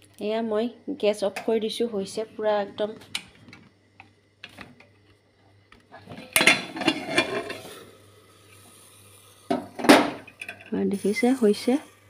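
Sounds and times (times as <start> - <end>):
metal lid clattering: 6.1 - 7.8, 9.5 - 10.7.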